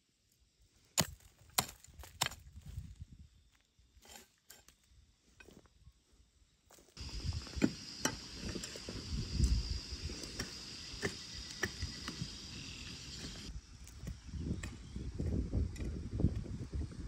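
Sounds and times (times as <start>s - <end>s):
high-pitched insect chorus: 6.0s - 15.2s.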